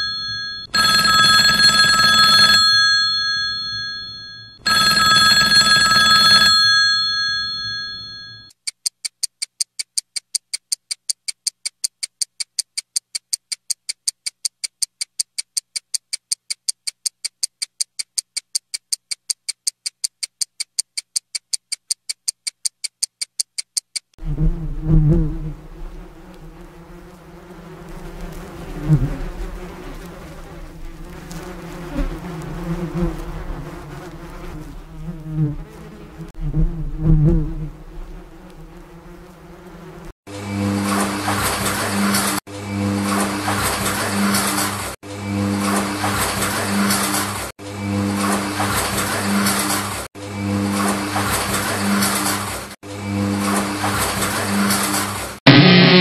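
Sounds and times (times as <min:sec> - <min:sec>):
bees buzzing: 0:24.2 - 0:47.3.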